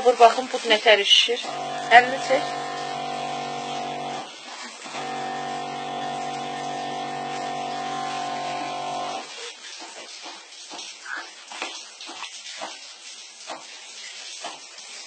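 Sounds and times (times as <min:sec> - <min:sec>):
electric pump humming: 0:01.4 - 0:09.3.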